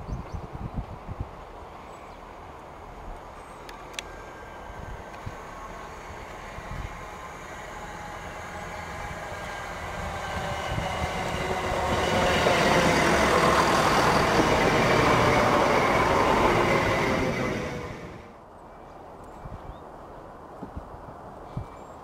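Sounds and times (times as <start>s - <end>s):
train wheel rumble: 0.0s - 18.4s
train engine: 1.4s - 18.4s.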